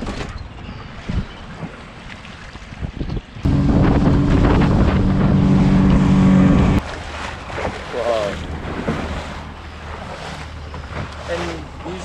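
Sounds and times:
water rushing along hull: 0:00.0 - 0:12.0
wind on microphone: 0:02.7 - 0:06.8
motorboat engine running: 0:03.4 - 0:12.0.

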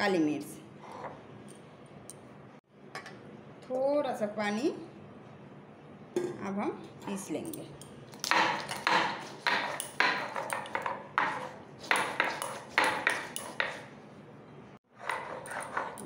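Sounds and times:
stone roller grinding on stone: 0:15.0 - 0:16.0.

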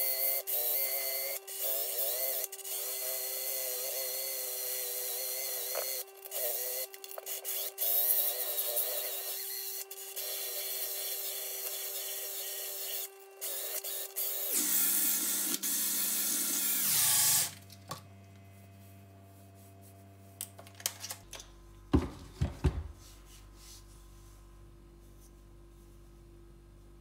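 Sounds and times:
drill motor whine: 0:00.0 - 0:17.6.

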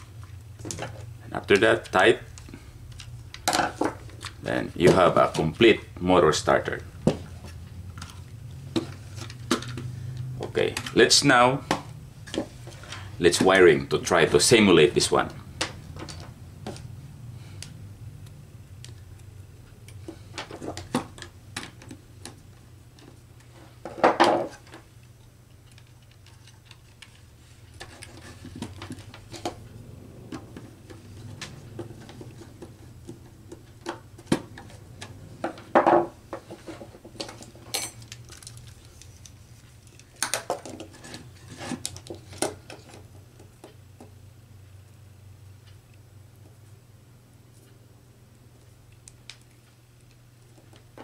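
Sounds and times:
low steady hum: 0:00.0 - 0:51.0
handling noise: 0:25.7 - 0:44.1.

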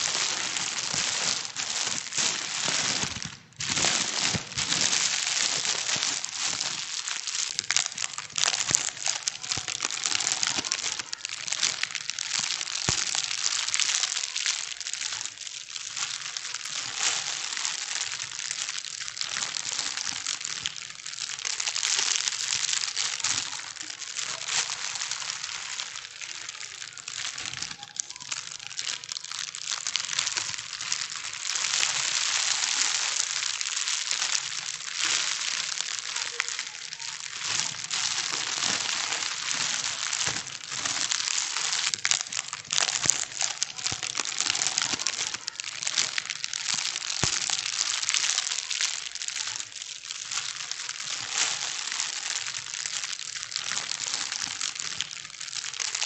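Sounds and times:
plastic bags crinkling: 0:00.0 - 0:56.0.

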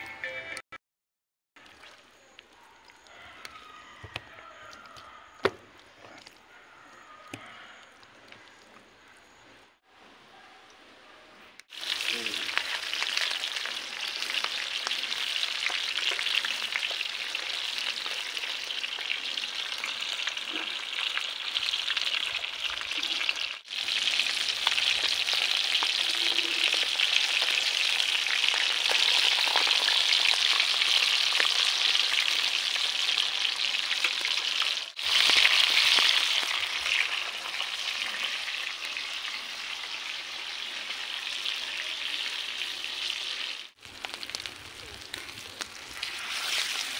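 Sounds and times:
fish frying in oil: 0:11.7 - 0:46.9.

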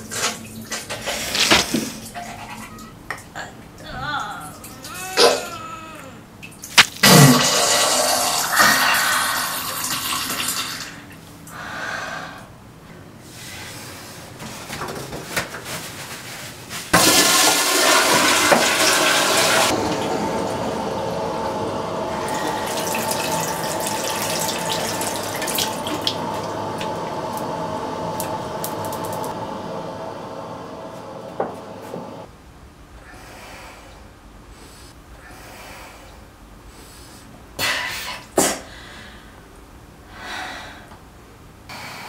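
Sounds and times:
toilet flushing: 0:00.0 - 0:02.9, 0:06.6 - 0:11.2, 0:16.9 - 0:32.3
toilet tank refilling hiss: 0:06.8 - 0:12.4, 0:17.0 - 0:20.5, 0:21.5 - 0:30.1.

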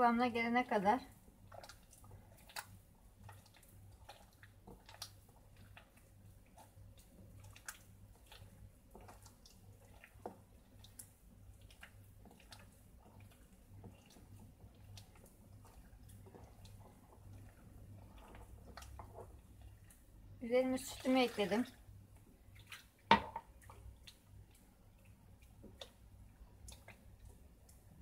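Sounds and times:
hands kneading sticky dough: 0:00.1 - 0:28.0.

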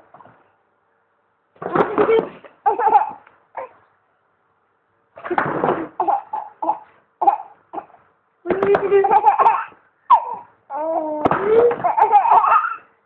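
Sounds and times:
baby laughing and babbling: 0:01.7 - 0:03.8, 0:05.7 - 0:12.9.

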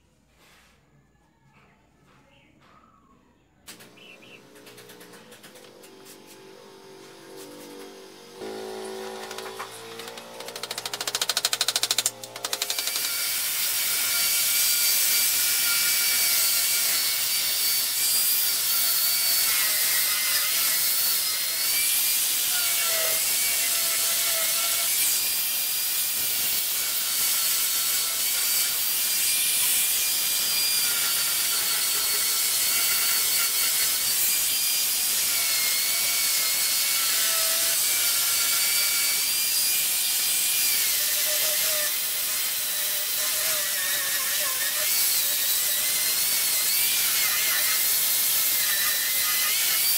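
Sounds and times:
short buzzing: 0:03.7 - 0:12.4
angle grinder sanding wood: 0:03.7 - 0:49.9.

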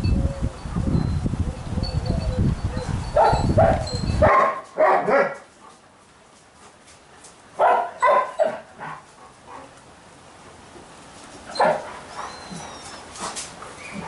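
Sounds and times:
dog barking: 0:03.2 - 0:05.4, 0:07.6 - 0:09.0, 0:11.6 - 0:11.9.

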